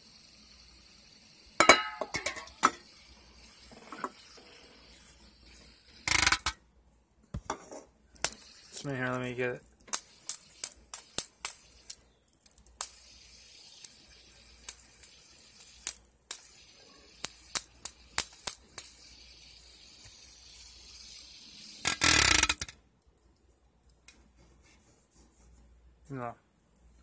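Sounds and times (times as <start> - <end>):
spinner buzzing against metal can: 2.2 - 6.6, 8.2 - 9.1, 9.9 - 12.0, 12.8 - 22.7
fidget spinner clicks and taps: 9.8 - 13.1, 13.7 - 22.8.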